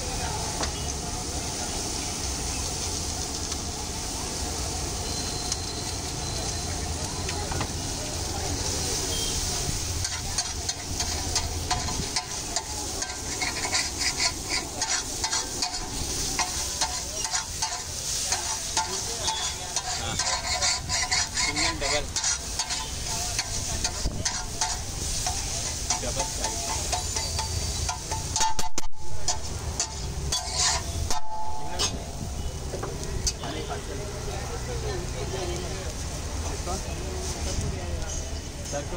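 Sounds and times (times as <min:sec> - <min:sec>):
egg sizzling in oil: 0:00.8 - 0:31.8
metal spatula scraping iron griddle: 0:08.6 - 0:32.2.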